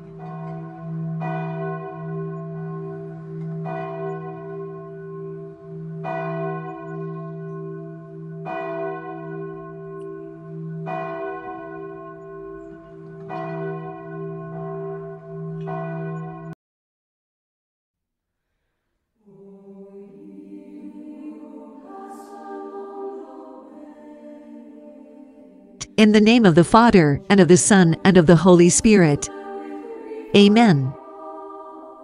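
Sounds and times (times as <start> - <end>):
church bell tolling: 0.0 - 16.5.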